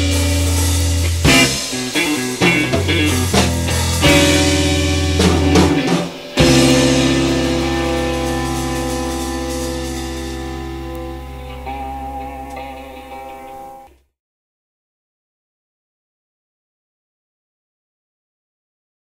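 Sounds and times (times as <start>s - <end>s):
drum kit: 0.0s - 13.8s
guitar chord ringing: 0.0s - 13.9s
bass guitar: 0.0s - 14.0s
electric guitar: 0.0s - 14.0s.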